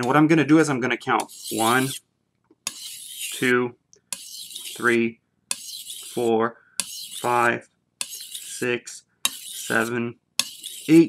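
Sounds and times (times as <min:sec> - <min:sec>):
knife scraping on whetstone: 0:01.2 - 0:02.0, 0:02.7 - 0:03.4, 0:04.1 - 0:04.9, 0:05.5 - 0:07.4, 0:08.0 - 0:11.0.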